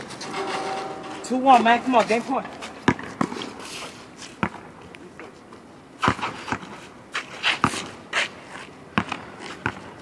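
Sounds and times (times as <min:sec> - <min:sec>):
basketball bouncing on asphalt: 0:02.8 - 0:03.5, 0:04.3 - 0:04.8, 0:06.0 - 0:06.8, 0:07.6 - 0:10.0.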